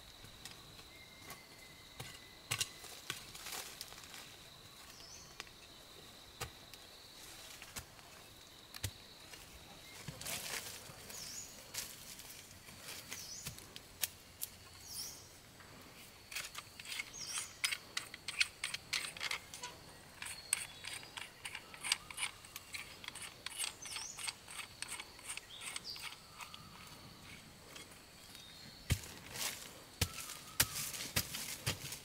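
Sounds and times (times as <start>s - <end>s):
high insect hum: 0.0s - 32.0s
birds chirping: 16.6s - 31.7s.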